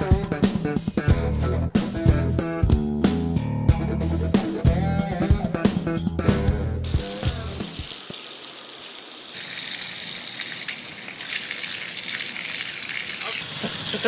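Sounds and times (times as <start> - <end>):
background music with bass guitar: 0.0 - 7.8
hose water spraying on metal: 6.8 - 14.0.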